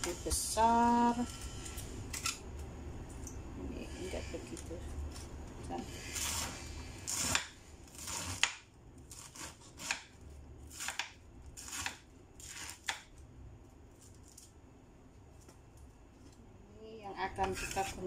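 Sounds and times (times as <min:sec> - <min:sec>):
knife slicing cabbage on board: 0:06.0 - 0:10.1, 0:10.7 - 0:13.1.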